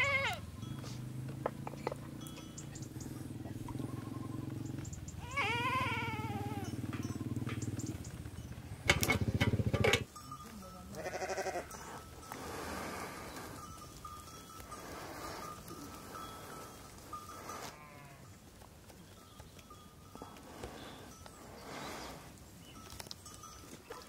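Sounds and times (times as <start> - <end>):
young sheep or goat bleating: 0.0 - 0.5, 5.2 - 6.7, 10.9 - 11.8, 17.5 - 18.3.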